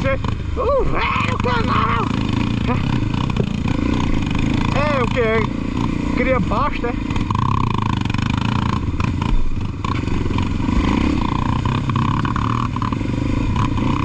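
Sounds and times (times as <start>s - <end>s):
motorcycle engine running: 0.0s - 14.0s
knocks and clatter: 2.2s - 5.1s.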